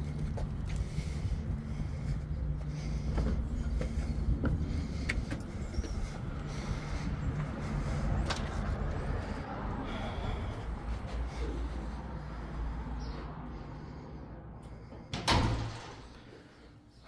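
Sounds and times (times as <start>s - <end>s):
footsteps on concrete steps: 0.0s - 12.4s
steady low rumble: 0.0s - 17.0s.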